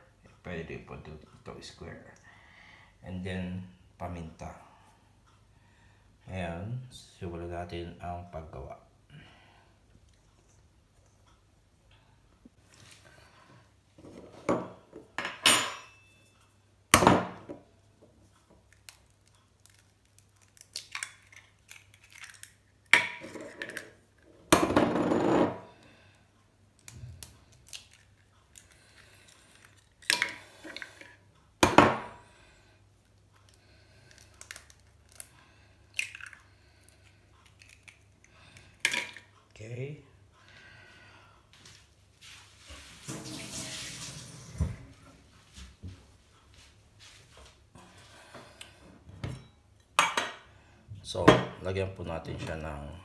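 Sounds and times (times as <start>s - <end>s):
crockery clinking: 14.6s - 16.4s.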